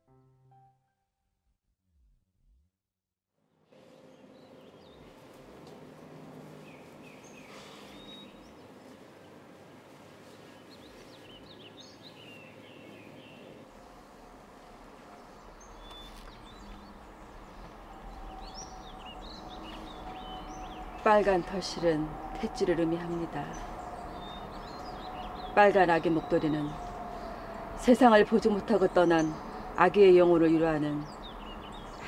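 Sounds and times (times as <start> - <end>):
outdoor background hiss: 3.4 - 32.0
small birds chirping: 3.9 - 14.2, 15.1 - 32.0
low hum: 13.4 - 32.0.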